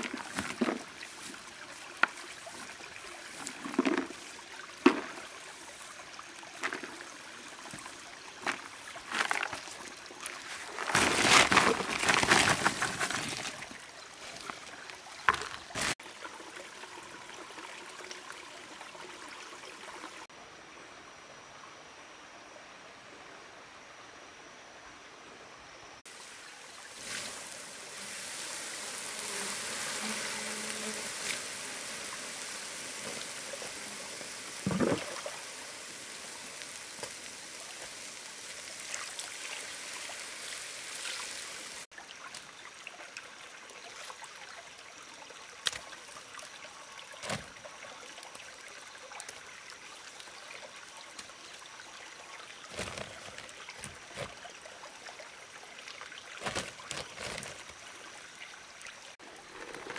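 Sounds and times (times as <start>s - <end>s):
water flowing and trickling: 0.0s - 20.4s, 26.1s - 59.9s
short knocks and splashes: 4.8s - 5.3s, 34.6s - 35.3s.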